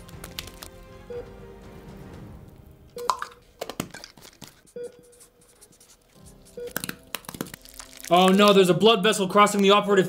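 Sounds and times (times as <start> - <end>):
light background music: 0.0 - 10.0
pen scratching on label: 4.9 - 7.0.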